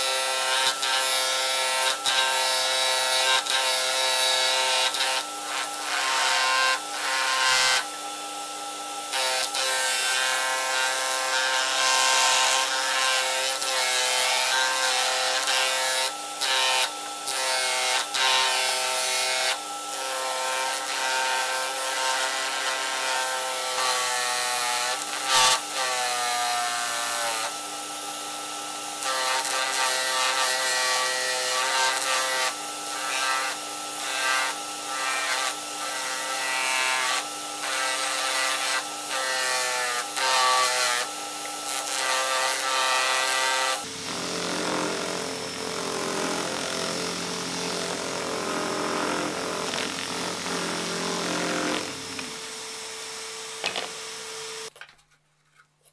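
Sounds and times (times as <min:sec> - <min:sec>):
wood sanding rasp: 0:00.0 - 0:08.1, 0:09.1 - 0:28.2, 0:29.0 - 0:45.1
drill press motor hum: 0:43.9 - 0:52.6.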